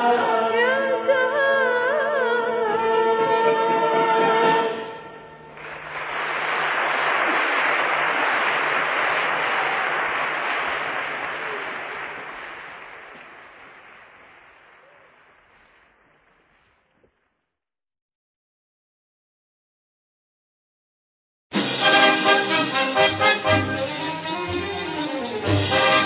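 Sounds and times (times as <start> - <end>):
audience applause: 5.5 - 16.6.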